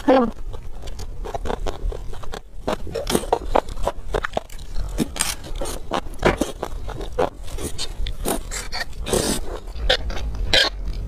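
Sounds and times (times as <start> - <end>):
chewing: 0.0 - 11.0
person slurping food: 2.6 - 10.8.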